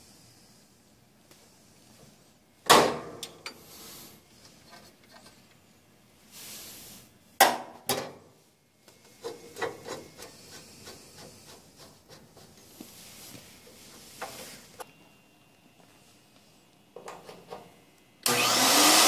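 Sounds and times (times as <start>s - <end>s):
scraping rubbing strokes of machine: 9.2s - 14.8s.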